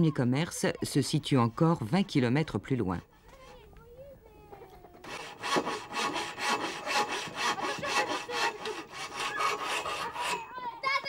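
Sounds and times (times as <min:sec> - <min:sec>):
hand saw cutting wood: 0:05.0 - 0:11.0.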